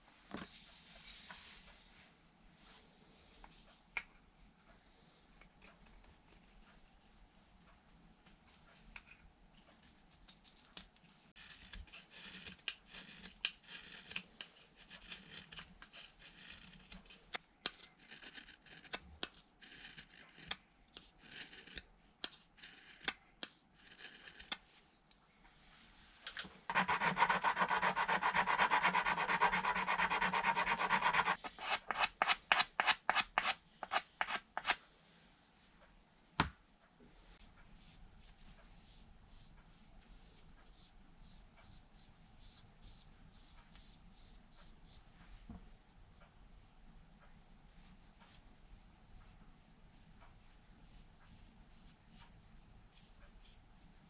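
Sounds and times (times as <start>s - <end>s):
rubbing strokes on wood: 26.7s - 34.7s
knife scraping wood: 26.7s - 34.8s.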